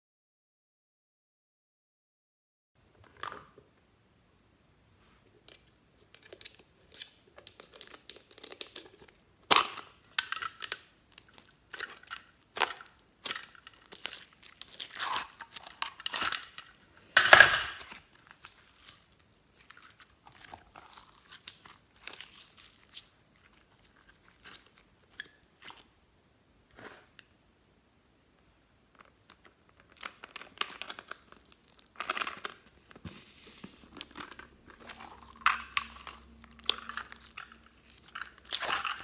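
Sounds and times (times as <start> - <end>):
slime tearing and crackling: 10.6 - 16.7, 17.8 - 25.9, 30.0 - 33.0, 34.7 - 39.0.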